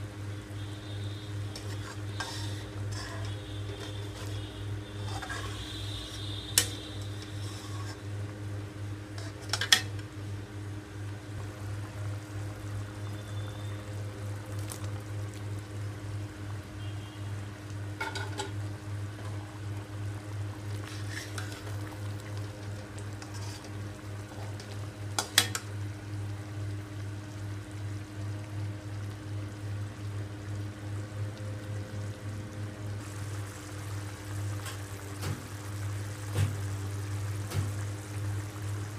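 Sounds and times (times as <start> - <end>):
metal spoon scraping a pan: 1.5 - 8.1, 9.1 - 10.0, 18.0 - 18.5, 20.8 - 21.7, 23.2 - 24.6.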